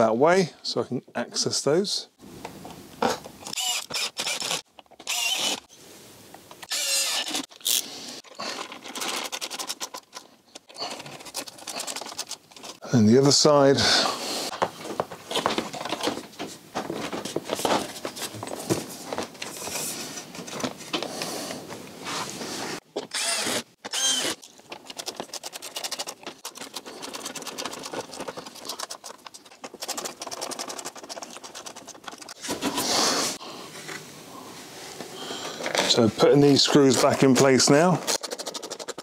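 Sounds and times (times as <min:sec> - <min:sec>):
plastic panel handling and rustling: 0:08.4 - 0:12.8, 0:14.6 - 0:21.8.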